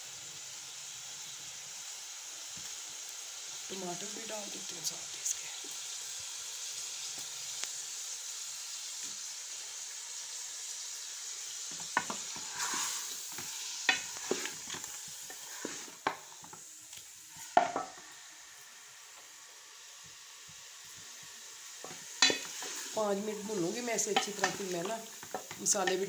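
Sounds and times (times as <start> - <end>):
food sizzling in oil: 0.0 - 26.0
spoon scraping metal pot: 22.2 - 23.0.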